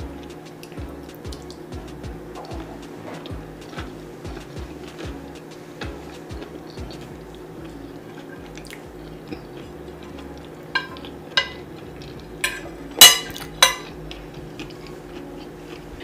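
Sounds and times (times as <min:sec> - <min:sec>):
low steady hum: 0:00.0 - 0:16.0
cutlery clinking on plate: 0:10.7 - 0:11.7, 0:12.4 - 0:13.9.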